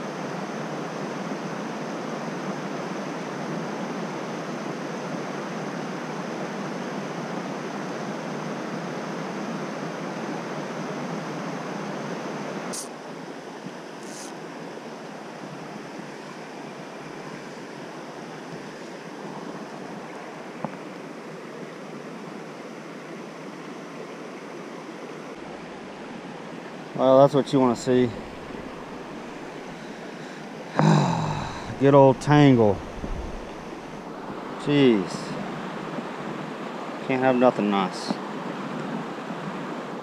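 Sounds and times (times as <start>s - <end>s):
stream flowing over rocks: 14.6s - 37.2s.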